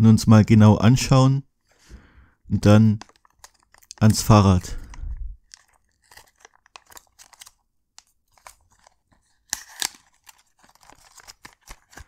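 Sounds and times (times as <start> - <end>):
packaging crinkling and rustling: 2.9 - 12.0.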